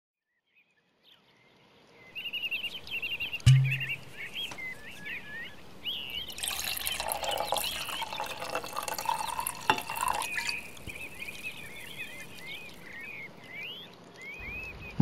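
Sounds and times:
birds chirping: 2.0s - 15.0s
water running and splashing: 6.3s - 14.1s.

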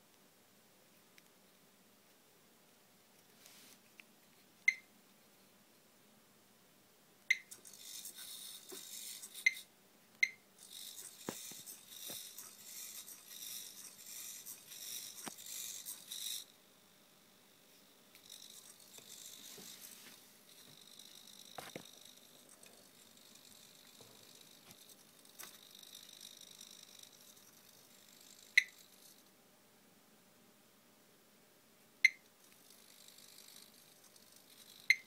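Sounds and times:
short high beeps: 7.3s - 7.6s
robot leg motors whirring: 7.4s - 9.7s, 10.6s - 16.5s, 18.2s - 29.2s, 32.5s - 35.0s.

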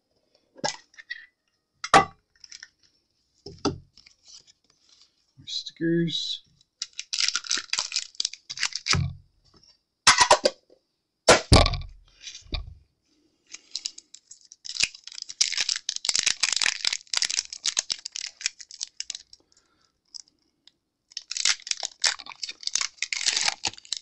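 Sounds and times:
foil wrapper crinkling: 2.3s - 3.0s, 6.8s - 9.0s, 13.5s - 24.0s
foil pack tearing: 6.8s - 9.0s, 13.6s - 19.2s, 21.1s - 24.0s.

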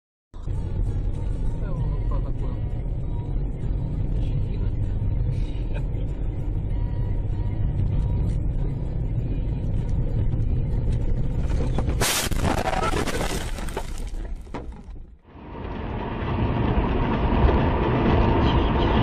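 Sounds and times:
car engine and tyres rumbling: 0.4s - 19.0s
car crash with breaking glass: 11.7s - 14.9s.

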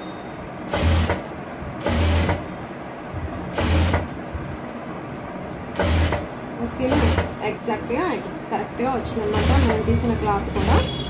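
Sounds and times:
electric sewing machine running: 0.7s - 2.5s, 3.5s - 4.1s, 5.8s - 6.3s, 6.9s - 7.4s, 9.3s - 9.9s, 10.5s - 10.9s.

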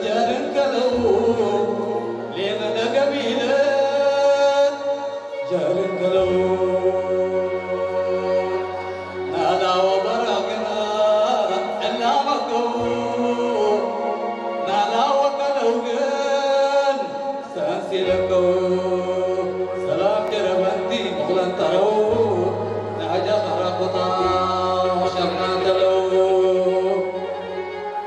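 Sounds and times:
man chanting into a microphone: 14.7s - 27.4s.

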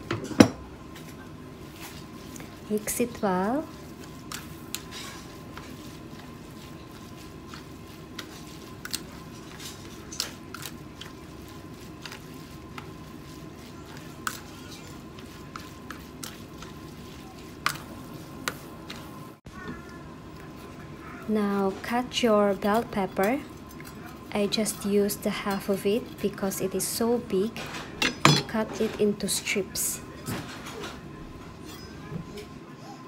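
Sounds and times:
wet noodles squishing: 1.5s - 24.4s.

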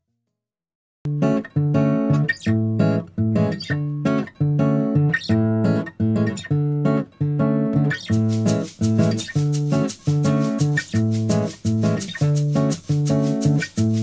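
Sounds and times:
guitar chords strummed: 1.1s - 14.0s.

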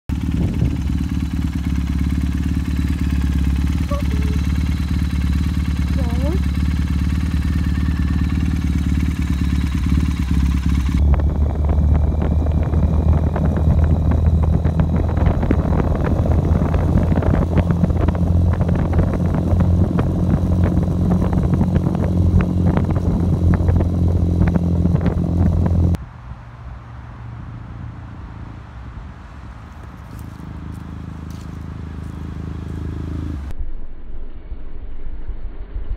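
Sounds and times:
motorcycle engine droning: 0.0s - 26.2s, 27.1s - 33.5s
wind buffeting microphone: 0.1s - 2.2s, 6.1s - 26.0s.

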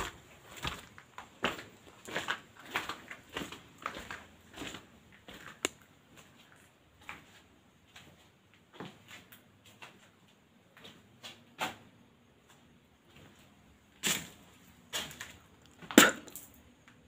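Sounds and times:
footsteps scuffing on rubble: 0.0s - 10.2s, 13.1s - 16.5s.

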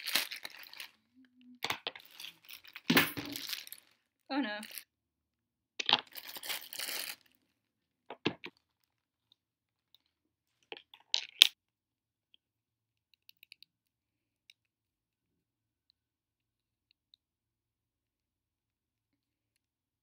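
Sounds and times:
plastic bag crinkling: 0.0s - 1.0s, 6.0s - 7.3s.

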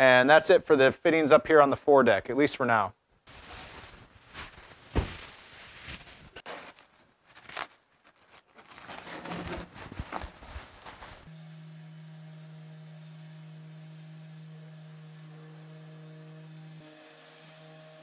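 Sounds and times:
plastic sheeting rustling: 3.3s - 11.3s.

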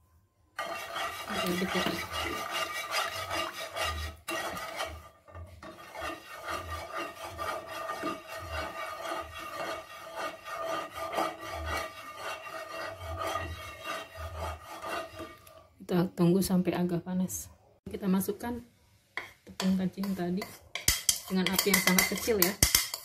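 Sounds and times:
spatula scraping pan: 0.6s - 15.8s, 19.2s - 23.0s.

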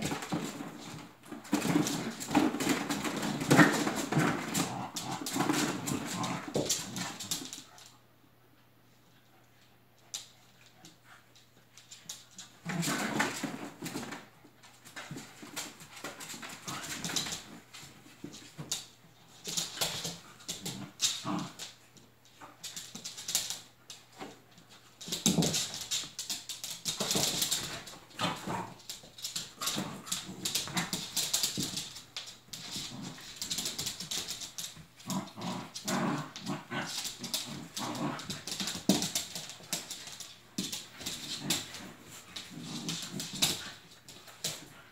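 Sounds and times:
paws scrabbling on blanket: 34.9s - 44.9s.

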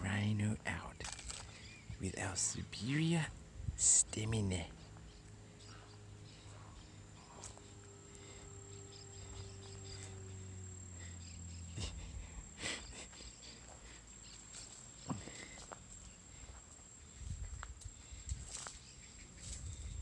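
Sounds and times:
high-pitched whine: 0.0s - 20.0s
low hum: 0.0s - 20.0s
footsteps on dry leaves: 13.6s - 20.0s.

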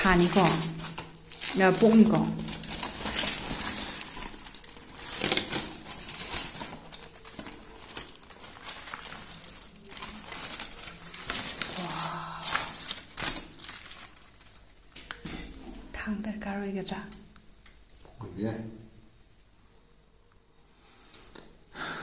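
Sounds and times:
foil and leaf wrapping crinkling: 0.0s - 15.8s.

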